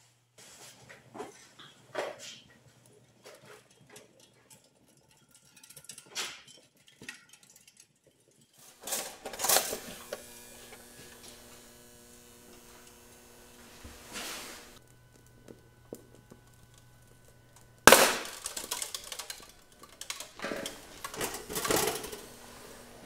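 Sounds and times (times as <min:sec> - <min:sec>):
electrical hum: 0:08.7 - 0:23.0
loud noisy clatter: 0:17.8 - 0:23.0.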